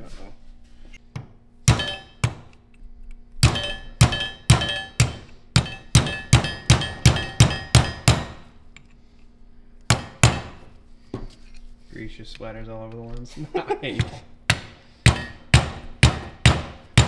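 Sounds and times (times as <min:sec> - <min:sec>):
hammer striking metal: 0:01.6 - 0:02.6, 0:03.4 - 0:08.5, 0:09.9 - 0:10.6, 0:14.0 - 0:17.0.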